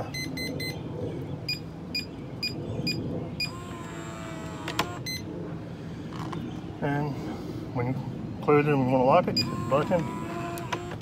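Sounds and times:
lock motor whirring: 3.4 - 5.2, 9.4 - 11.0.

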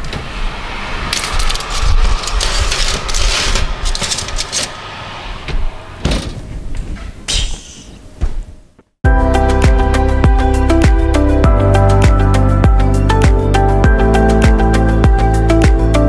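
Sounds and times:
oven door shutting: 0.0 - 7.2
metal baking tray scraping: 1.2 - 5.2.

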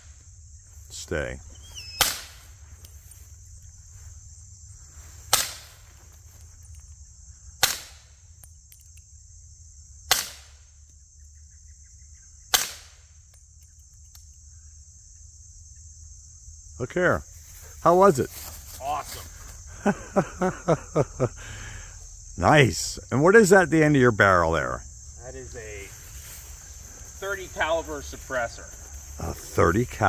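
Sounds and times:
high insect buzz: 0.0 - 30.0
suppressed rifle shots: 2.0 - 2.4, 10.1 - 10.6.

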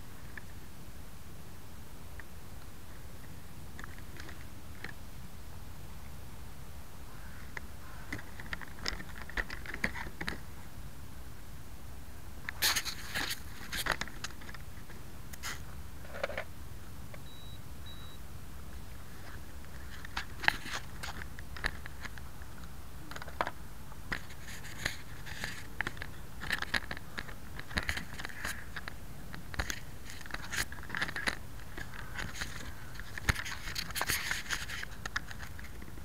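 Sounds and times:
faint high beeps: 17.2 - 18.2.

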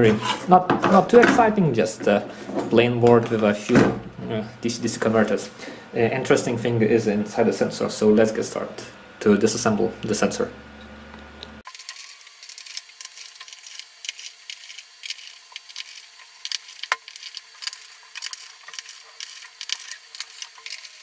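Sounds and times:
screwdriver clicking and scraping: 11.8 - 21.0.

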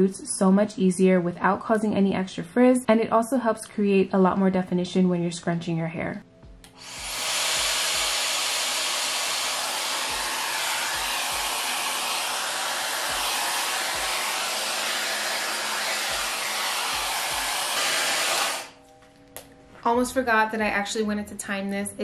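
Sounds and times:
hair dryer blowing air: 6.7 - 18.8.

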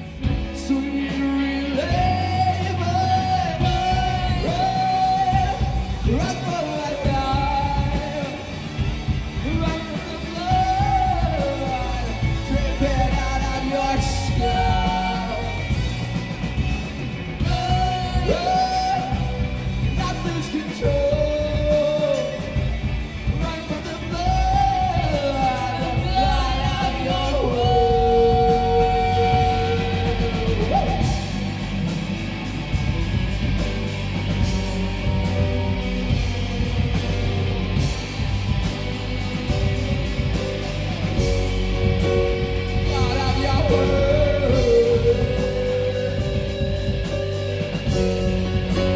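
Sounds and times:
person singing lead vocal: 0.0 - 48.9
rock band playing: 0.0 - 48.9.

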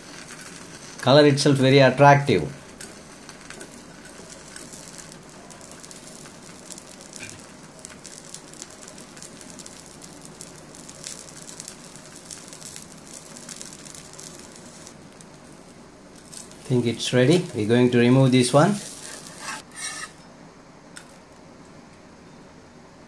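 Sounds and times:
ghee sizzling in a frying pan: 0.0 - 20.2.

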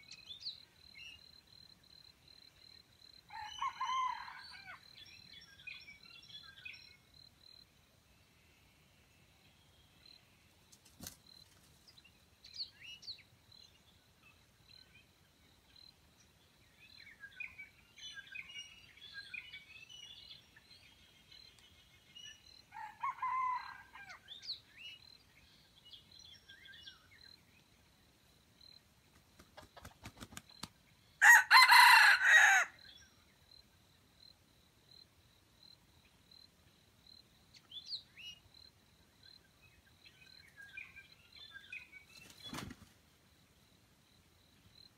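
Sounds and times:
rooster crowing: 3.3 - 4.8, 22.7 - 24.2, 31.2 - 32.8.

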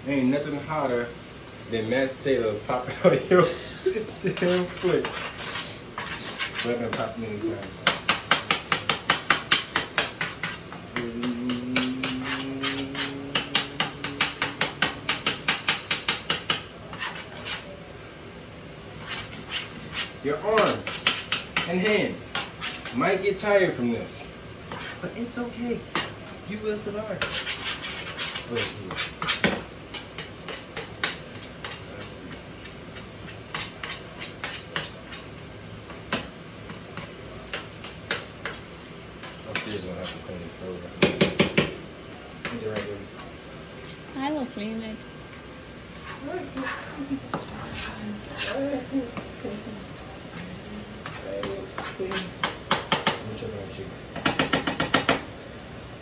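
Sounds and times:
utensil clacking in metal saucepan: 7.8 - 17.1, 54.1 - 55.3
metal spoon scraping saucepan: 11.5 - 15.3.

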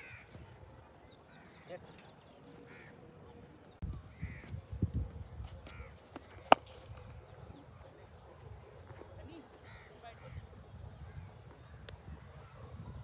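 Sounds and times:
crows cawing: 0.0 - 0.4, 2.7 - 3.0, 4.1 - 4.5, 5.7 - 6.0, 9.6 - 11.2.

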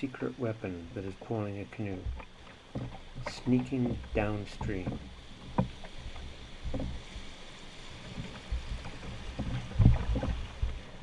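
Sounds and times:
river current and rapids: 0.0 - 11.0
thuds against boat: 8.2 - 10.8.

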